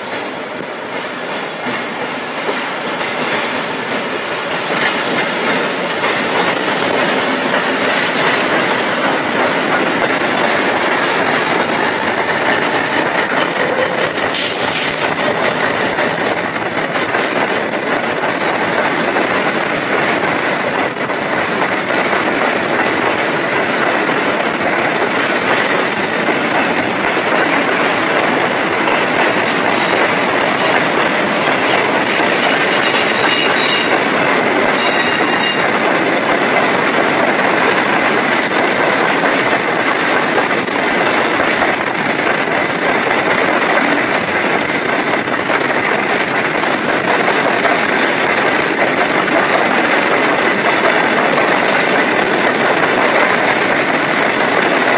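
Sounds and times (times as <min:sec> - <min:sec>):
train wheels rumbling on rail: 0:00.0 - 0:54.9
high-pitched wheel squeal: 0:34.7 - 0:35.7.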